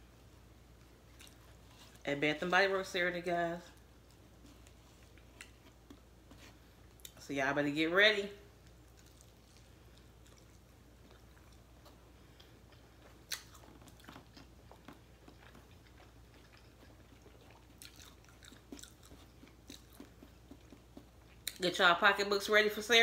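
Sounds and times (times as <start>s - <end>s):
crunchy chewing: 1.0s - 2.0s, 8.6s - 21.6s.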